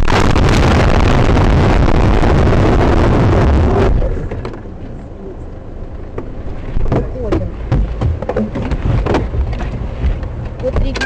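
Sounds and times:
camera knocking and clattering: 0:06.8 - 0:11.0.

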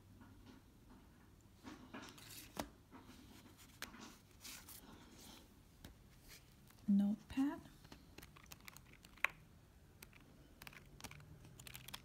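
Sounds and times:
paper rustling and clicking: 0:07.8 - 0:09.4, 0:10.0 - 0:12.0.

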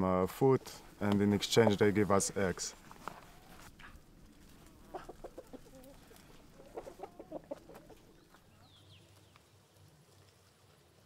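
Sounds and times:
chickens clucking: 0:03.1 - 0:08.8.

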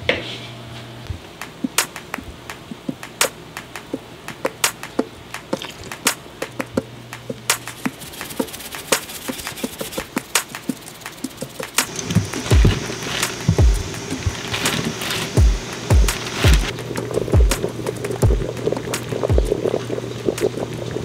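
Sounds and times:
sharp ticks and pops: 0:01.4 - 0:21.0
pot of water coming to boil: 0:11.9 - 0:21.0.

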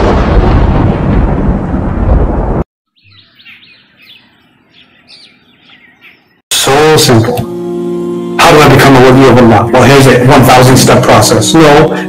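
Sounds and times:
heavy rain: 0:00.0 - 0:02.6
rumbling thunder: 0:00.0 - 0:02.7
faint birds chirping: 0:02.9 - 0:06.4.

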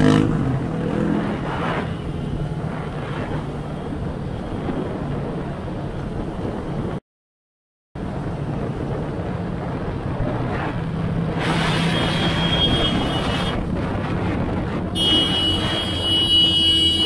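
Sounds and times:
wind and road noise: 0:00.0 - 0:07.0, 0:08.0 - 0:17.0.

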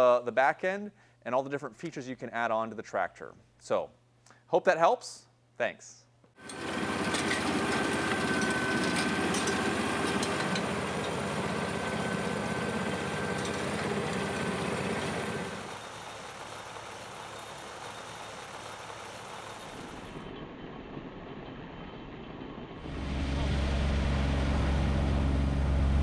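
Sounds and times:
high whine: 0:06.4 - 0:26.0
tractor engine running: 0:06.4 - 0:26.0.

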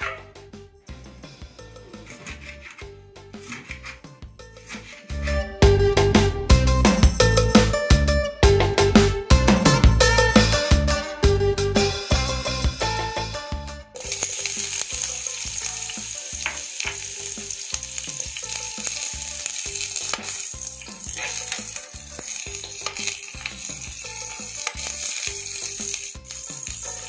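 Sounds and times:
spatula scraping a pan: 0:01.6 - 0:05.5, 0:16.4 - 0:27.0
onions sizzling in oil: 0:14.0 - 0:27.0.

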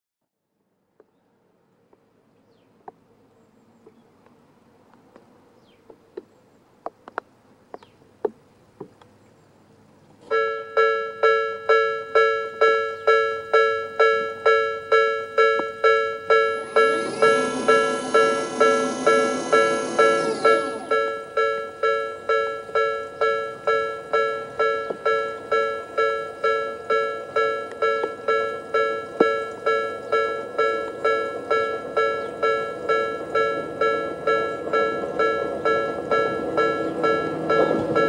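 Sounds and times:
level crossing alarm bell tone: 0:10.3 - 0:38.0
barriers lowering whir: 0:15.6 - 0:23.1.

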